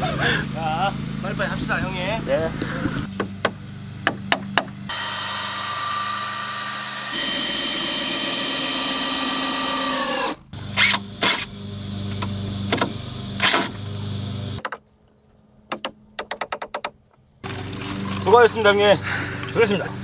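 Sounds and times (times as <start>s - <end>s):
sharp knocks: 3.1s - 4.8s, 14.6s - 14.9s, 15.7s - 17.1s
cordless drill motor whine: 4.7s - 14.6s.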